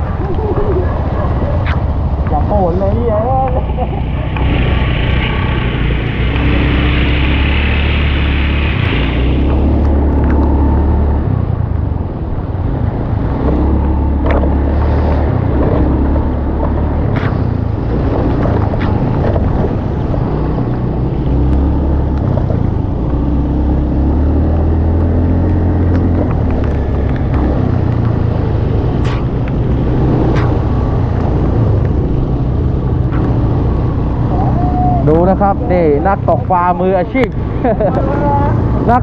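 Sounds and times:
motor engine running: 0.0 - 11.6
wind on microphone: 0.0 - 24.0.

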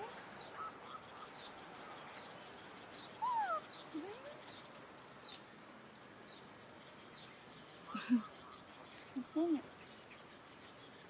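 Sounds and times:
falling animal call: 3.2 - 3.7
rising animal call: 3.2 - 3.7
animal chirping: 3.2 - 4.4.

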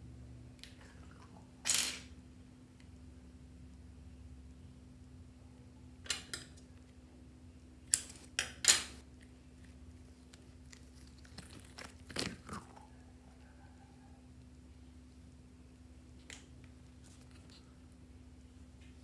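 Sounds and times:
rubber balloon crackling: 10.6 - 12.8.

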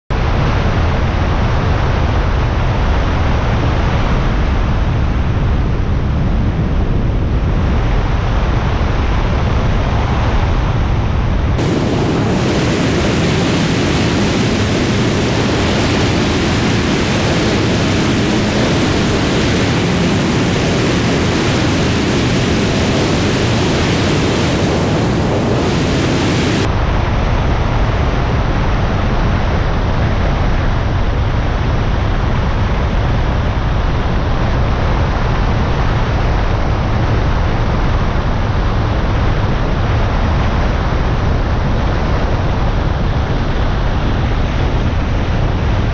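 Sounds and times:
aircraft engine: 0.1 - 45.9
airflow rushing: 11.6 - 26.7.

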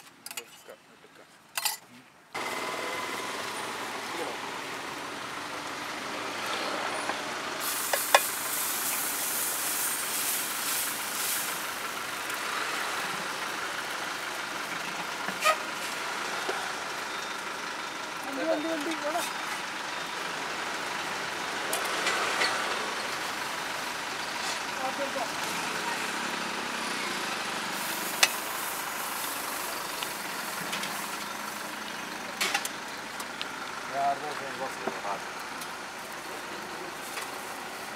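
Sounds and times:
steady hissing: 7.6 - 13.4, 27.6 - 32.1
batter sizzling on a hot pan: 7.6 - 16.6, 27.6 - 32.6.

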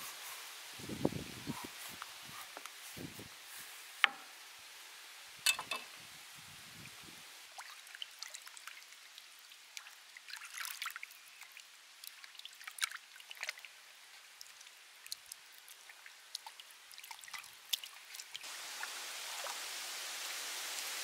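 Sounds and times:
water splashing and trickling: 5.4 - 21.0.

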